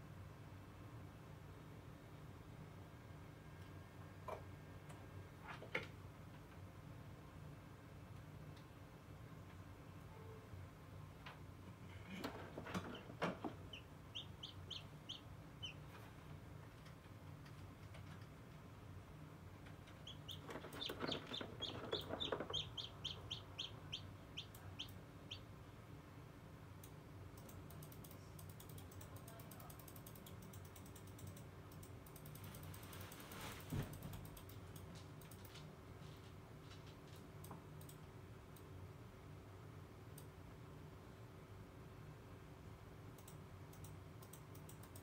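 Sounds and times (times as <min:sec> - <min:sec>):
incubator hum: 0:10.7 - 0:27.4
chick peeping: 0:12.8 - 0:15.9, 0:19.9 - 0:25.5.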